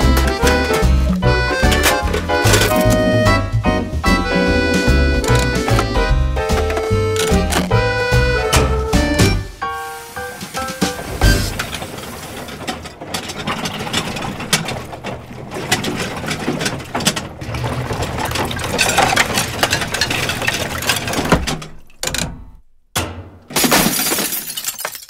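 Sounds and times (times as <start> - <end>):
crockery breaking: 0.0 - 3.1, 10.2 - 22.0, 23.0 - 25.0
washing machine rattling: 0.0 - 23.7.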